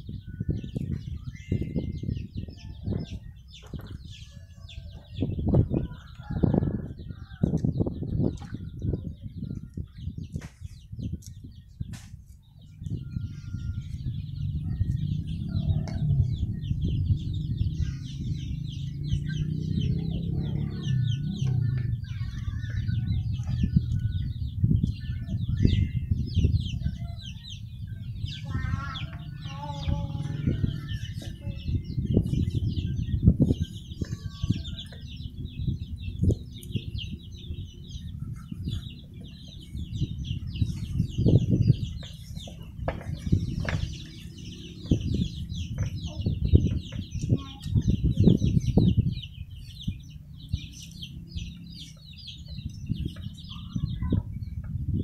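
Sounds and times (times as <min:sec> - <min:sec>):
chickens clucking: 0:02.3 - 0:55.0
low rumble: 0:12.7 - 0:55.0.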